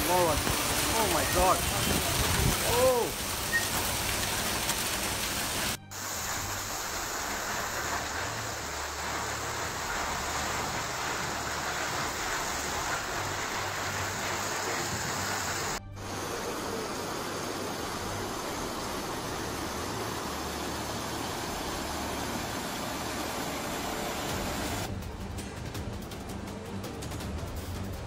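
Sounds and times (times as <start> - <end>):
heavy rain pouring: 0.0 - 25.0.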